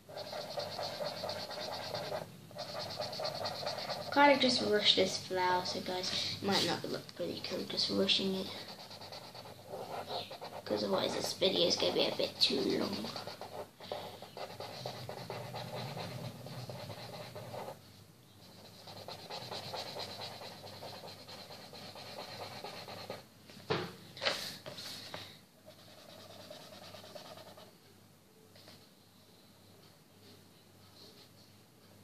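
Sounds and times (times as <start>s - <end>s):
marker scratching on paper: 0.1s - 5.8s, 7.5s - 17.8s, 18.4s - 23.2s, 25.7s - 27.7s.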